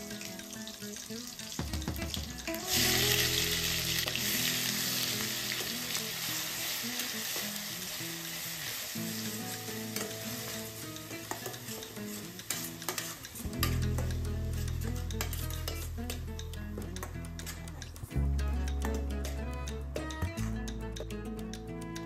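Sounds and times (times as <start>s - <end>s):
paste sizzling in hot oil: 0.0s - 15.9s
metal spatula stirring: 8.8s - 18.0s.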